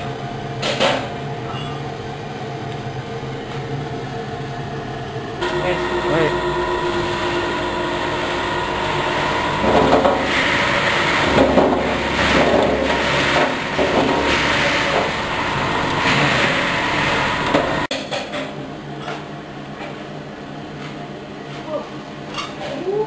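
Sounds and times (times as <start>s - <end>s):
herb dryer motor hum: 0.0s - 17.9s.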